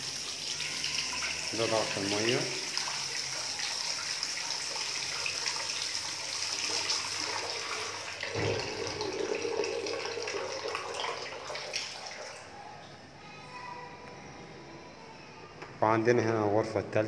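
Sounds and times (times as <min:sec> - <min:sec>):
tap water running into basin: 0:00.0 - 0:12.5.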